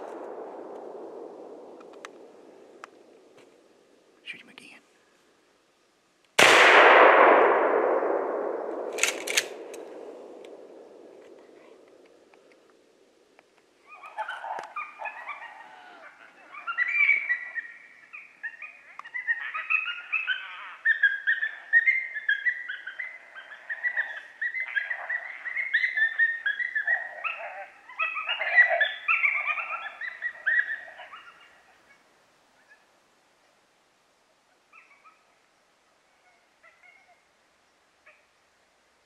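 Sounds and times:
coyotes yipping and howling: 8.4s - 33.0s, 34.4s - 37.4s, 38.0s - 38.4s.

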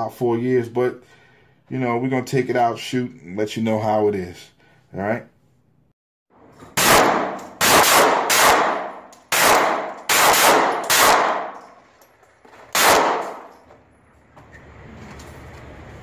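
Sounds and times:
pistol shots echoing indoors: 6.6s - 11.8s, 12.7s - 13.6s.

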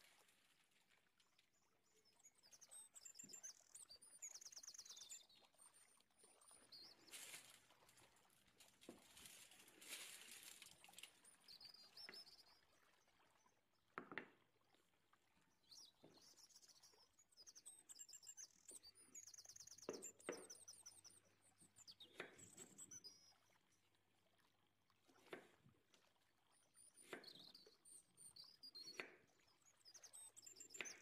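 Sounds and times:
birds chirping and trilling: 2.1s - 5.7s, 15.7s - 23.4s.

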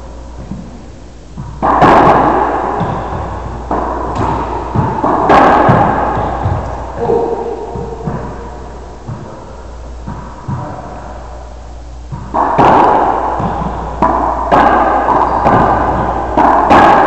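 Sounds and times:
racquetball sharp cracks: 1.3s - 17.0s
ball knocking on court: 1.4s - 9.3s.

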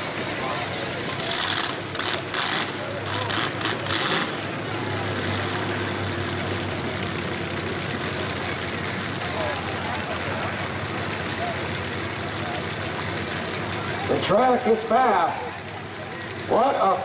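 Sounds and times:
cars idling: 0.0s - 17.0s.

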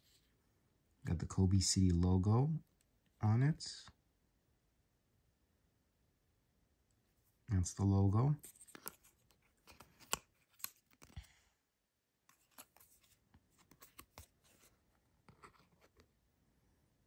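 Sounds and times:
paper tag rustling: 8.4s - 11.2s, 12.3s - 16.0s.

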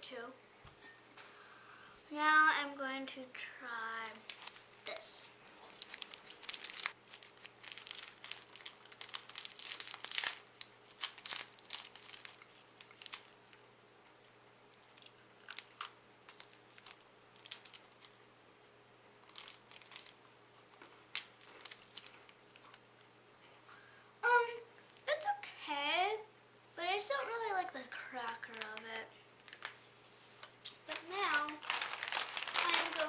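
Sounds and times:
plastic wrapper crinkling and tearing: 4.1s - 13.6s, 14.8s - 18.2s, 19.2s - 22.8s, 28.2s - 29.8s, 30.4s - 33.0s
biscuit crunching bites: 14.8s - 18.2s.

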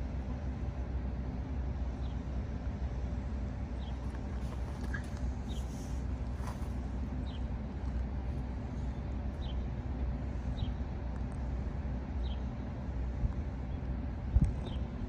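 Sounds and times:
engine idling: 0.0s - 15.0s.

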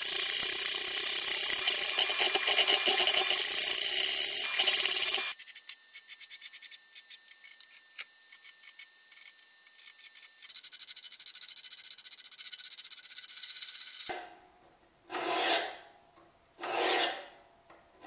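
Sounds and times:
file scraping steel blade: 15.1s - 15.9s, 16.6s - 17.4s.

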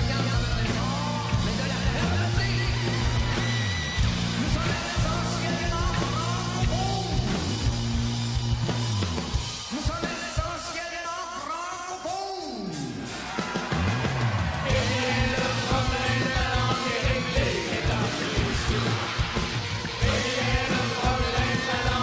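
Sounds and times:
live rock band playing: 0.0s - 22.0s
person singing: 4.4s - 7.4s, 14.6s - 19.4s, 20.0s - 22.0s.

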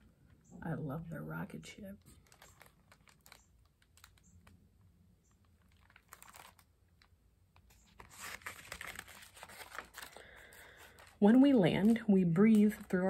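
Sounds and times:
page turning rustle: 2.0s - 4.6s, 5.2s - 13.0s.

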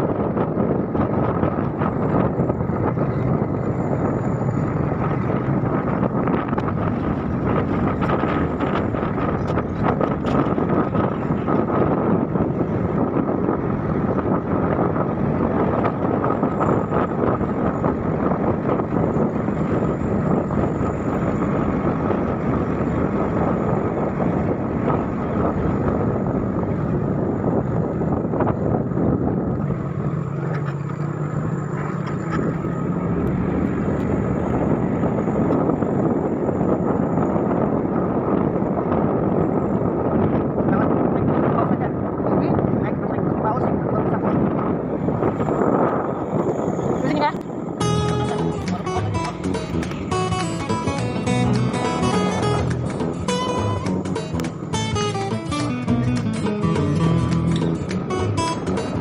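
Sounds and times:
scooter engine running: 0.0s - 41.4s, 44.3s - 59.0s
wind on microphone: 0.0s - 59.0s.

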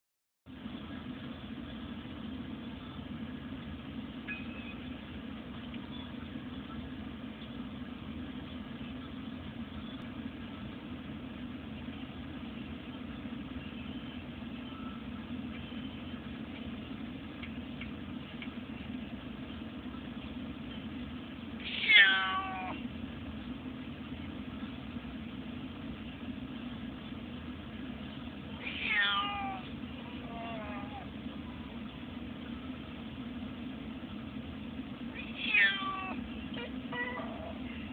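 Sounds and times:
car engine drone and road noise: 0.5s - 37.9s
cat meowing: 21.6s - 22.8s, 28.6s - 31.1s, 35.2s - 37.6s.

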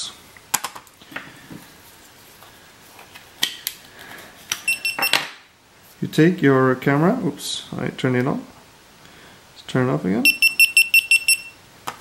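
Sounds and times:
camera beep: 4.7s - 5.2s, 10.3s - 11.6s.

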